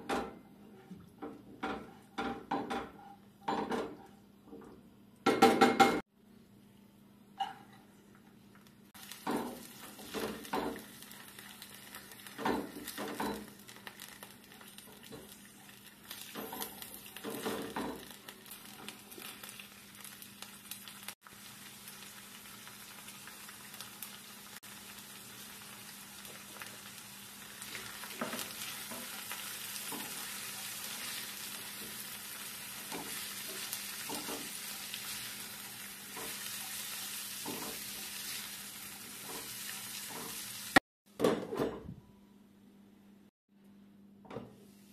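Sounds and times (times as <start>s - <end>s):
food sizzling in oil: 8.9s - 40.8s.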